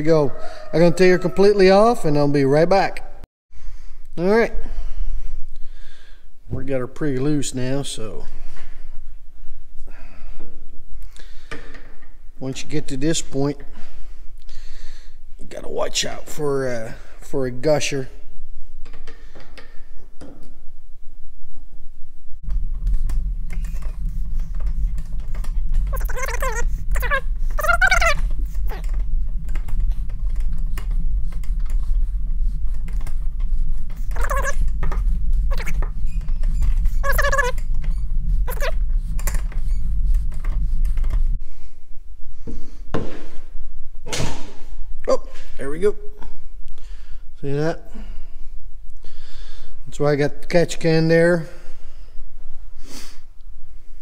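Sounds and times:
steady low hum: 3.6 - 54.0.

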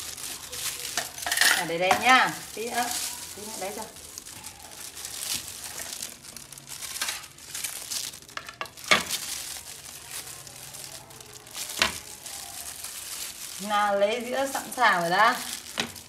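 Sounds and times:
plastic gloves crinkling: 0.0 - 16.0.

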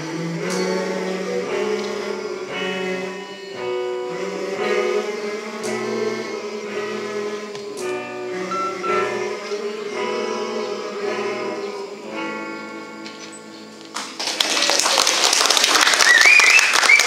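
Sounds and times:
lead singer on microphone: 0.0 - 12.8
men singing together: 0.0 - 12.8
electric guitar: 0.0 - 14.5
applause: 13.9 - 17.0.

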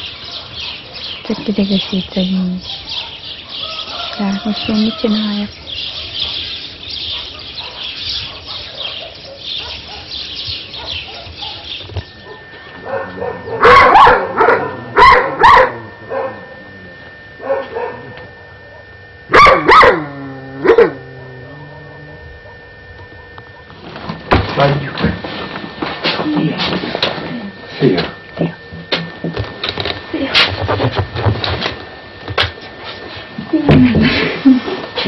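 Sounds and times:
dog barking: 1.8 - 4.1, 7.1 - 16.5, 17.4 - 23.8.

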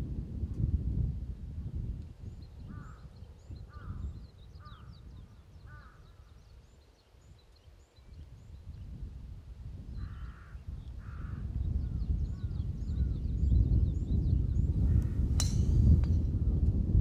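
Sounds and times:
wind rumble on microphone: 0.0 - 17.0
small birds chirping: 2.2 - 9.1, 9.9 - 16.2.

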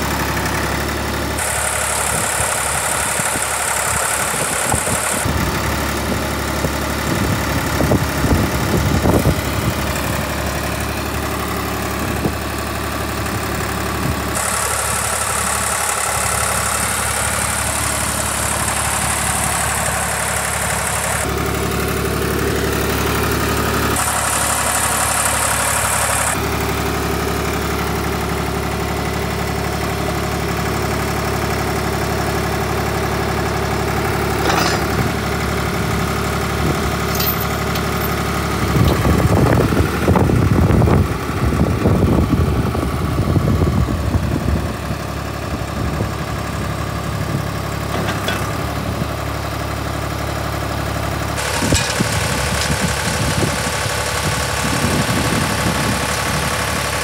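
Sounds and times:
trencher engine running: 0.0 - 57.0
knocks and scrapes: 34.4 - 34.9.

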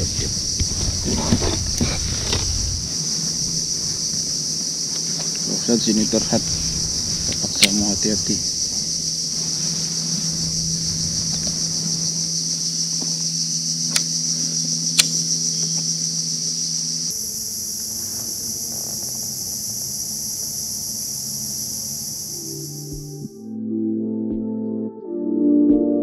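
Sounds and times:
insect chorus drone: 0.0 - 23.4
sharp clicks: 14.9 - 15.8.

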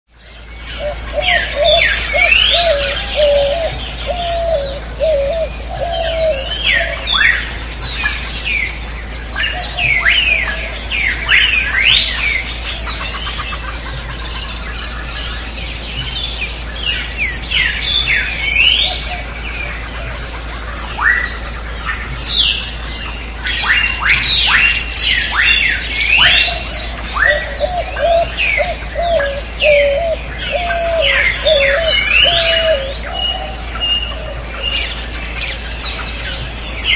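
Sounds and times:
birds chirping: 0.1 - 36.9
steady low hum: 0.2 - 36.9
low warbling bird call: 0.3 - 36.9.

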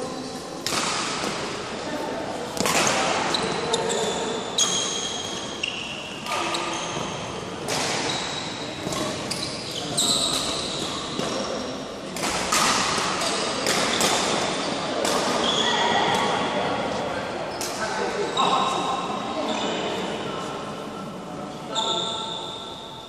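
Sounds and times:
racket striking shuttlecock: 0.6 - 1.5, 2.6 - 3.2, 12.2 - 15.4
sneakers squeaking on court: 2.6 - 7.3, 8.0 - 11.6, 21.7 - 22.6.

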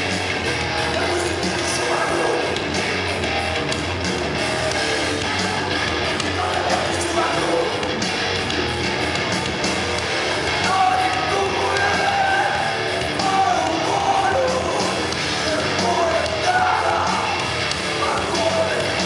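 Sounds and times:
drums: 0.0 - 19.0
electric guitar: 0.0 - 19.0
person singing and shouting: 0.7 - 2.8, 5.2 - 7.9, 10.5 - 19.0.

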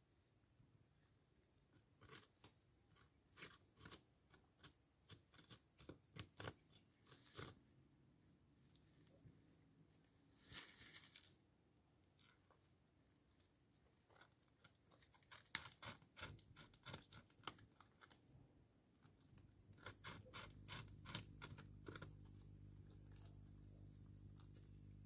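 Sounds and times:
beaver gnawing wood: 14.1 - 18.3, 19.0 - 25.0
low steady hum: 18.0 - 25.0.

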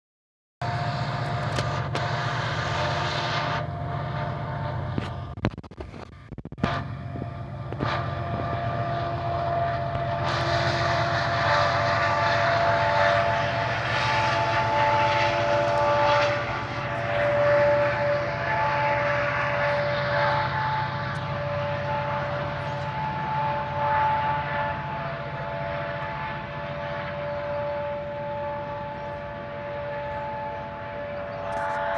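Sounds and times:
diesel locomotive engine drone: 0.6 - 31.9
freight cars rolling by: 0.6 - 31.9
locomotive whining tones: 0.6 - 31.9.

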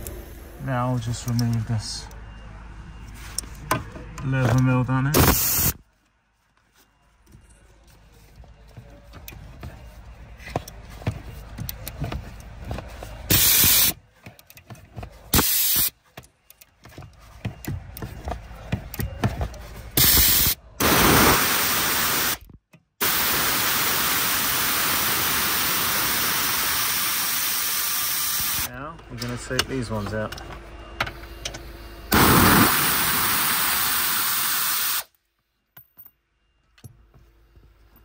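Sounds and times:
bursts of steady hiss: 20.0 - 22.4, 23.0 - 28.7, 32.1 - 35.1.

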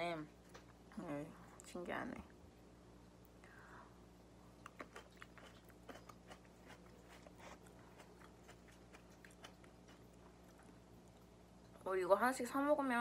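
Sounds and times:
mouth chewing fruit: 4.5 - 11.8.

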